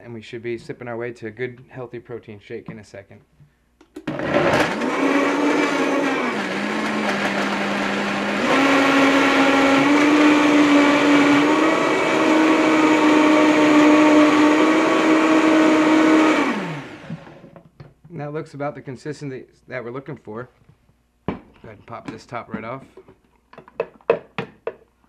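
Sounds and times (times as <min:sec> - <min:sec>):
blender motor running: 0:04.0 - 0:17.4.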